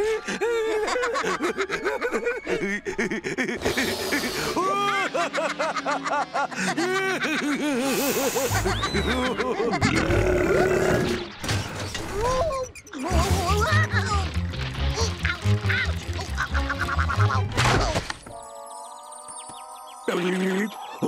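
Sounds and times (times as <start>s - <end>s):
cartoon music: 12.4s - 21.0s.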